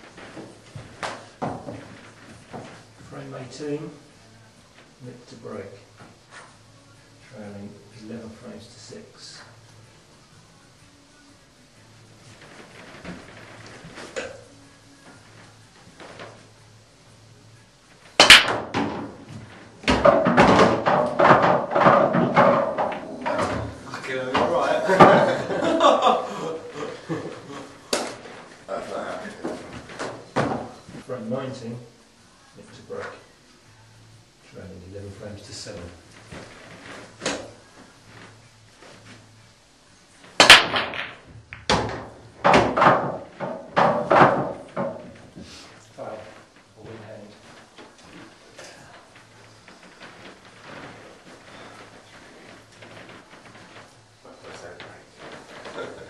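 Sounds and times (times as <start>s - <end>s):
pool balls clattering: 0.0s - 2.8s, 12.2s - 14.5s, 18.0s - 31.0s, 40.1s - 56.0s
billiard balls clattering: 18.1s - 25.8s, 40.2s - 45.4s
cue ball cracking into rack: 18.2s - 23.8s, 27.9s - 28.2s, 37.2s - 37.6s, 40.4s - 45.2s.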